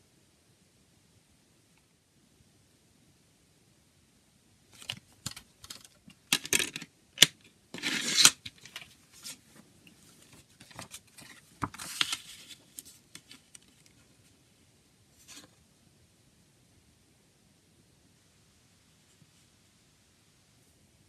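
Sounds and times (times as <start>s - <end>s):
paper rustling and sliding: 7.8s - 14.0s.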